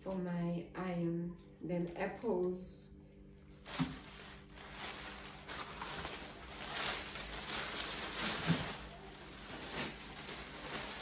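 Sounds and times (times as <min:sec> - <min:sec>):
packaging rustling: 0:03.5 - 0:11.0.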